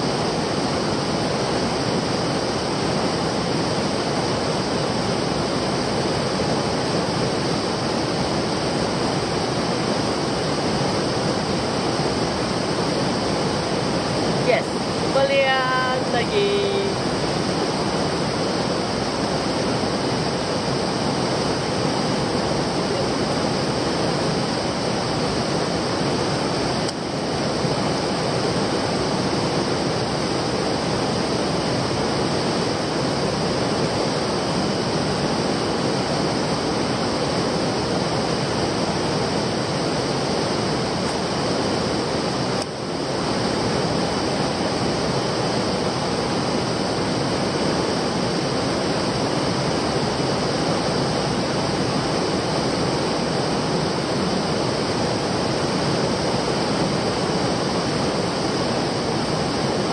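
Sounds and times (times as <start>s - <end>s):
stream water rushing: 16.9s - 59.9s.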